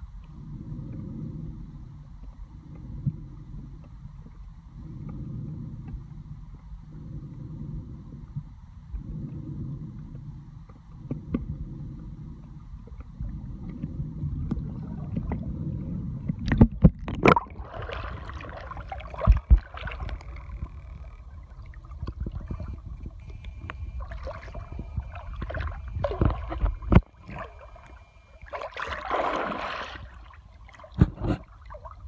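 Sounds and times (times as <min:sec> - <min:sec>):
water sloshing and gurgling: 0:09.0 - 0:32.0
water splash: 0:16.5 - 0:32.0
low rumble: 0:17.4 - 0:32.0.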